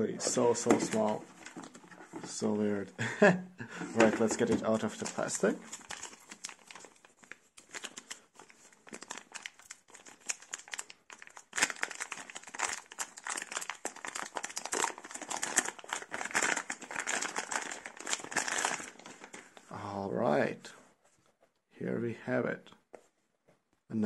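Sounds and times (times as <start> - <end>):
plastic bag crinkling: 4.0 - 19.6.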